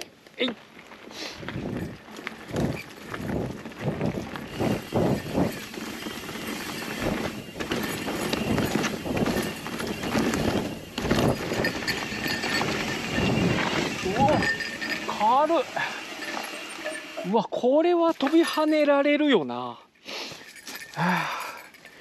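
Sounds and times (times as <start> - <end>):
bike tyres rolling over dirt: 0.1 - 17.4
bike knocks and rattles: 1.5 - 15.5.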